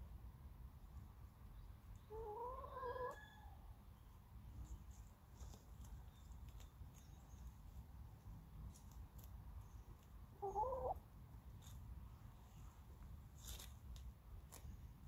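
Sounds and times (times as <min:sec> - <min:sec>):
scuffling of soil and leaves: 0:04.5 - 0:15.0
hen calling: 0:10.4 - 0:11.0.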